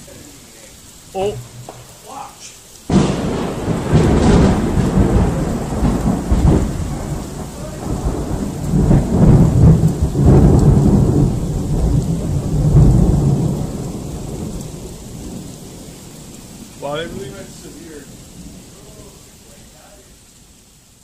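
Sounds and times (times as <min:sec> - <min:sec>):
steady rain: 0:00.0 - 0:21.0
thunder rumbling: 0:01.2 - 0:19.7
sharp thunder clap: 0:01.3 - 0:15.5.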